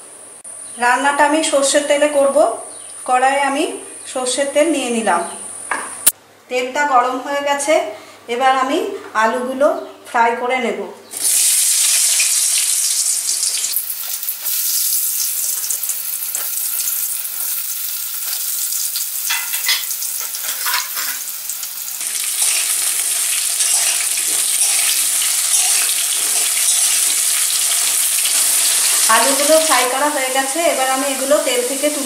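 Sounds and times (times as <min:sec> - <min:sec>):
potatoes sizzling in oil: 0:11.2 - 0:32.0
metal spatula stirring in pan: 0:22.3 - 0:29.1.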